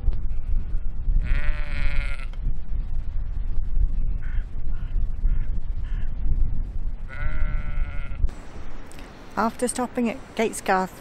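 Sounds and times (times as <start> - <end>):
wind rumble on microphone: 0.0 - 10.2
sheep bleating: 1.2 - 2.3.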